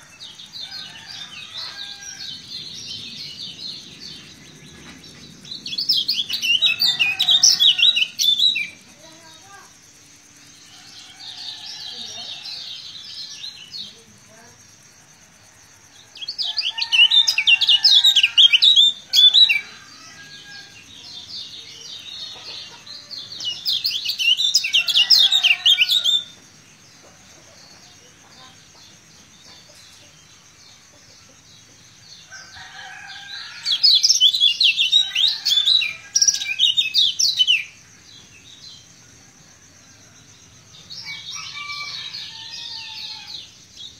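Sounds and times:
soft bird chatter: 0:00.0 - 0:39.0.

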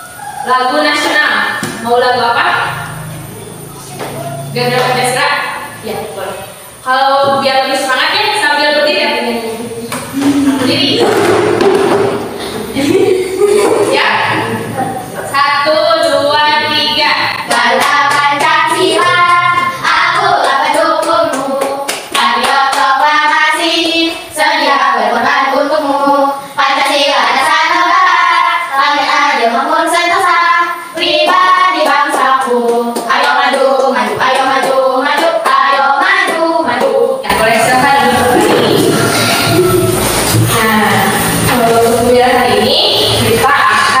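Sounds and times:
women singing together: 0:00.0 - 0:03.3, 0:04.0 - 0:44.0
hand claps: 0:20.2 - 0:22.9.

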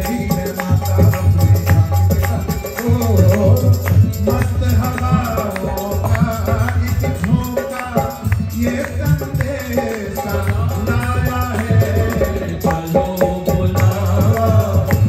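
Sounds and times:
live music with percussion beat: 0:00.0 - 0:15.0
man singing into a microphone: 0:00.0 - 0:15.0.

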